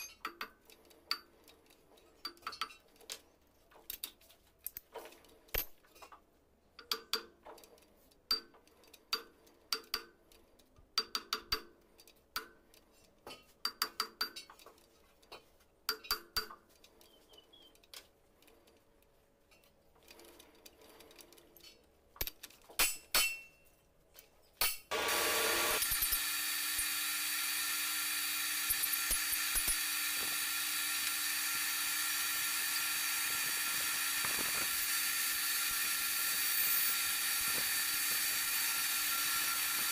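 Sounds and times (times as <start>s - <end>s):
lathe running: 24.9s - 39.9s
lathe tool cutting metal: 24.9s - 39.9s.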